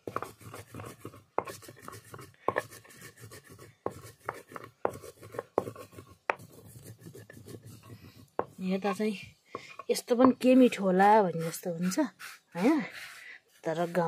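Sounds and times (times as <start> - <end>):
stone rubbing over stone: 0.0 - 14.0
stone knocking on stone: 8.0 - 8.6, 9.5 - 10.5.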